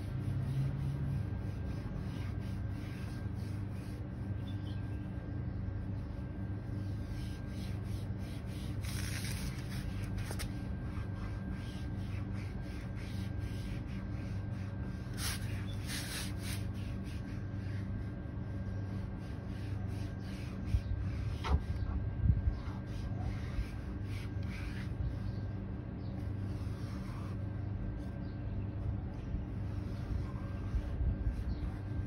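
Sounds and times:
foam pad scrubbing plastic: 0.0 - 4.6, 6.8 - 18.0
low hum: 0.0 - 32.0.

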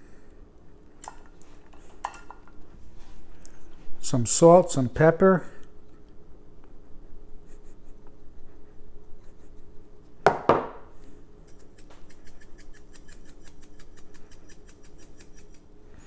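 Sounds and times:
glass shaker knocking on countertop: 10.3 - 10.8.

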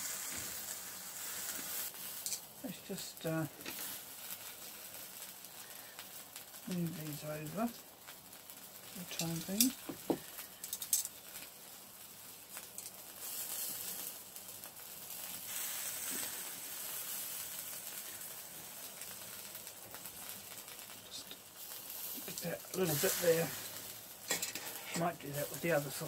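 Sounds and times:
sausages sizzling on a grill: 0.0 - 26.0.

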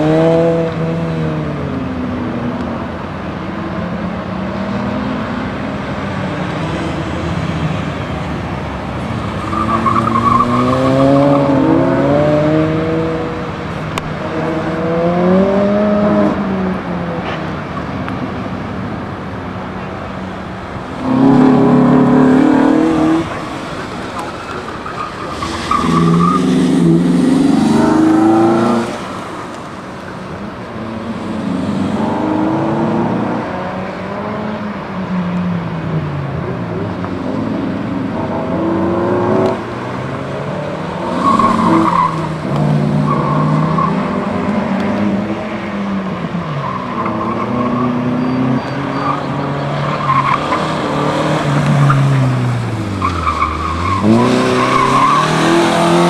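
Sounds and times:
car engine revving: 8.8 - 19.2, 20.3 - 34.7, 36.5 - 56.0
tire squeal: 9.3 - 11.8, 21.0 - 29.5, 41.0 - 44.5, 46.5 - 56.0.

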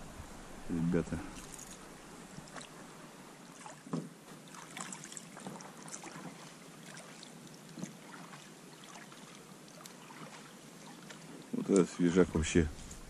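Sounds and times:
faint water noise: 0.0 - 13.0
knocks and splashes against boat: 3.6 - 11.4.

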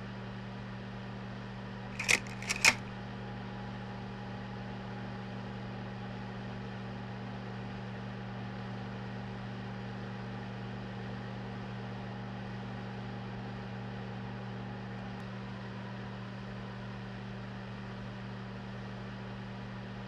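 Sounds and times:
sharp mechanical clicks: 2.0 - 2.9.

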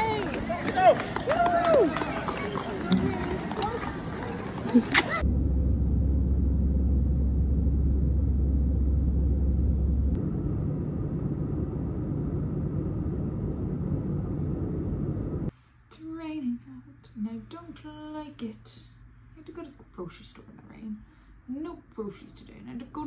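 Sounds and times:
jet airliner cabin noise: 3.5 - 15.5
low drone: 5.2 - 15.5
woman speaking: 15.9 - 23.0.

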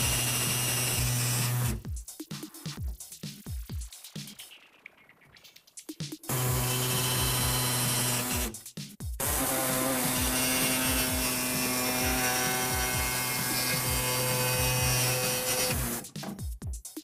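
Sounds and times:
pneumatic reciprocating saw cutting: 0.0 - 1.8, 6.3 - 8.6, 9.2 - 16.1.

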